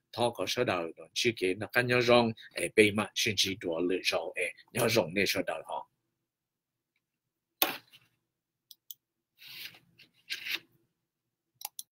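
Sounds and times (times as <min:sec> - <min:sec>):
rubbing and rustling: 0:09.4 - 0:10.7.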